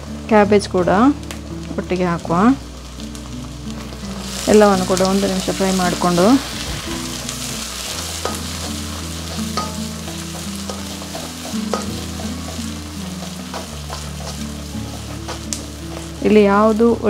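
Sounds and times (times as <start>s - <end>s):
vegetables sizzling in oil: 0.0s - 17.0s
wooden spatula scraping vegetables: 5.3s - 16.2s.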